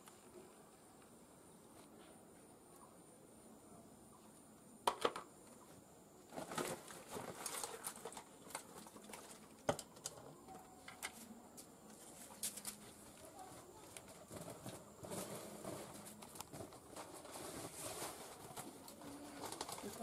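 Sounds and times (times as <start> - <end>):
plastic sack rustling: 6.3 - 9.5, 12.0 - 20.0.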